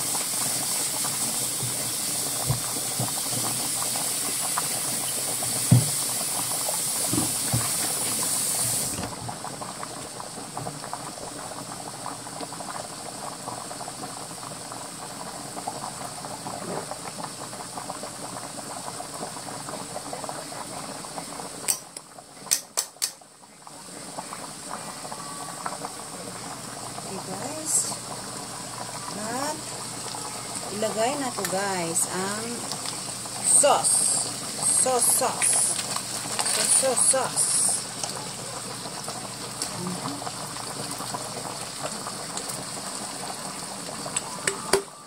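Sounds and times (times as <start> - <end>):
meat sizzling in frying pan: 0.0 - 9.0, 26.8 - 45.0
pot of water boiling: 0.0 - 45.0.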